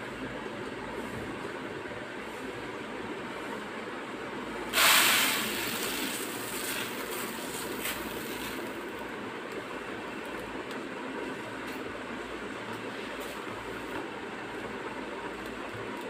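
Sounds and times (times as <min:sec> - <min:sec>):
grain pouring into plastic tub: 0:04.8 - 0:08.8.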